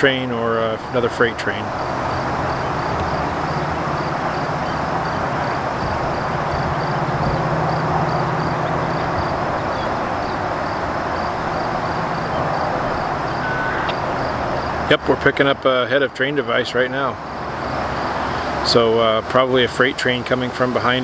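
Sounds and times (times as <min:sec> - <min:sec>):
locomotive engine drone: 0:00.0 - 0:21.0
train passing: 0:00.2 - 0:18.7.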